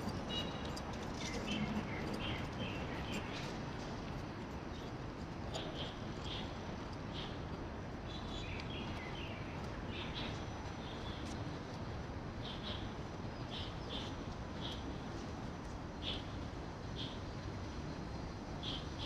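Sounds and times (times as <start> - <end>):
city street noise hum: 0.0 - 19.0
small birds chirping: 5.5 - 7.4, 8.0 - 11.4.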